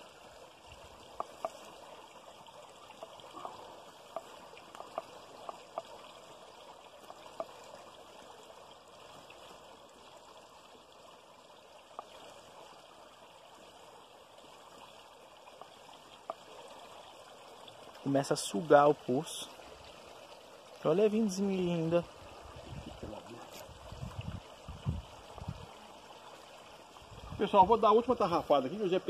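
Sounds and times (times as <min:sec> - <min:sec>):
running water: 0:00.0 - 0:29.0
light ticks and taps: 0:01.0 - 0:01.7, 0:04.0 - 0:06.2, 0:07.0 - 0:07.6.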